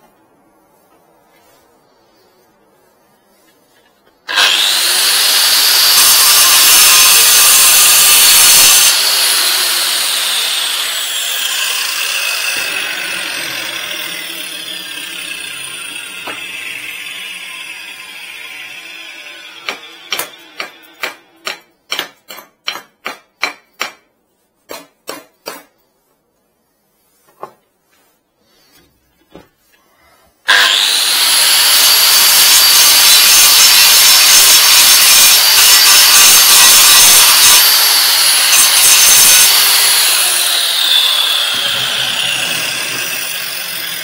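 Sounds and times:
angle grinder cutting concrete: 4.3s - 21.4s, 30.5s - 44.0s
grinder disc winding down: 39.5s - 44.0s.

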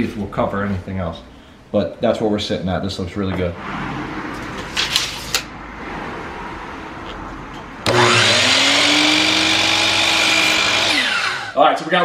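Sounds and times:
miter saw motor whining: 7.8s - 11.6s.

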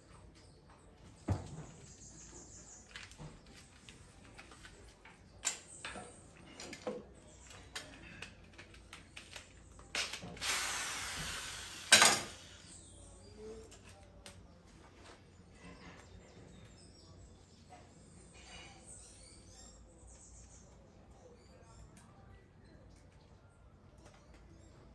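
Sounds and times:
cordless drill on sheet metal: 10.0s - 12.7s.

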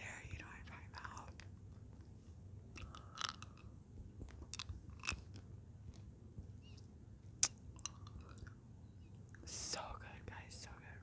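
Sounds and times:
hard candy crunching in mouth: 2.7s - 3.7s, 4.3s - 5.5s.

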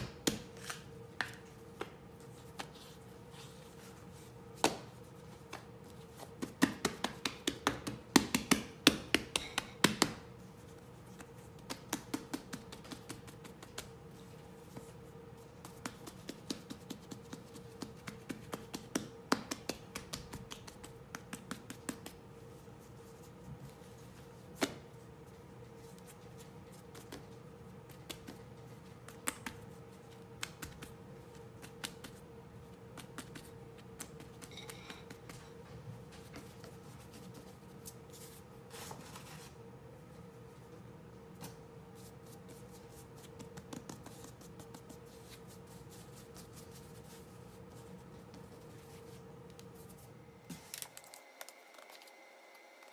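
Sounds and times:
hands patting dough on stone: 0.0s - 3.0s, 4.4s - 22.4s, 26.8s - 38.0s, 42.0s - 47.2s.

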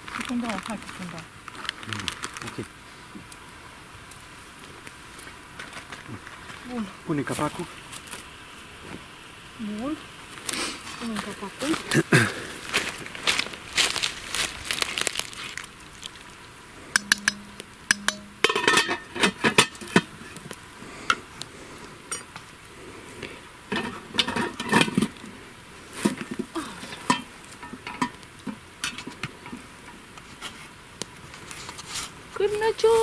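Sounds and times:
pot lid clinking: 17.0s - 19.8s.

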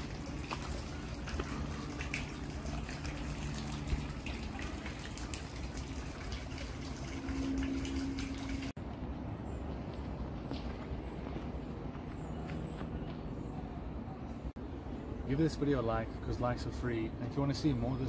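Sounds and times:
small splashes: 0.0s - 8.8s
water trickling and dripping: 0.0s - 8.8s.

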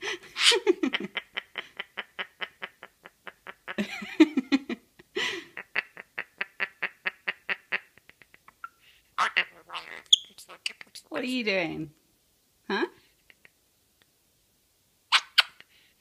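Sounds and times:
parrot harsh babble: 0.4s - 0.6s, 9.2s - 10.9s, 15.1s - 15.6s.

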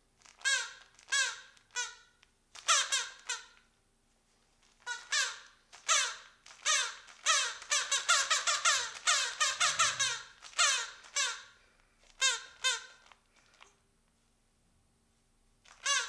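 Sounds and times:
squeaky toy squeaking: 0.4s - 3.6s, 4.8s - 11.6s, 12.2s - 13.1s, 15.7s - 16.0s.

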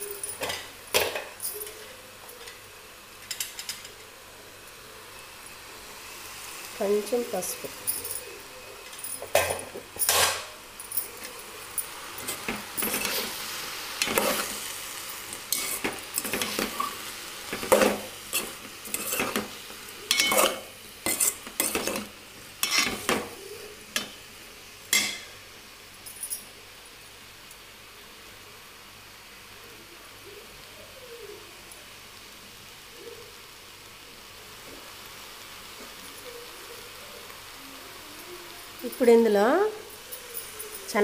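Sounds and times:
spoon scraping and clinking in pot: 7.8s - 13.4s, 14.0s - 14.7s, 15.3s - 23.3s.

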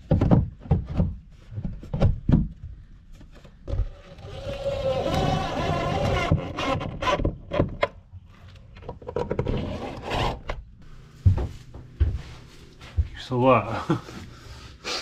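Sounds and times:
cordless drill whining: 4.1s - 7.2s.

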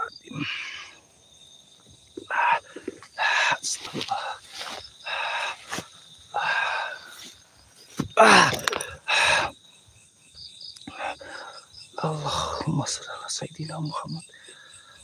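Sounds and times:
man murmuring: 0.0s - 0.8s, 2.3s - 2.6s, 12.0s - 14.2s
insects chirring: 0.0s - 15.0s.

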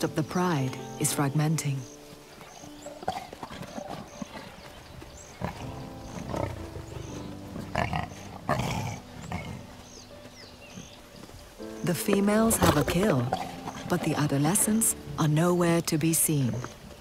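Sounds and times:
lions calling: 1.8s - 14.9s.

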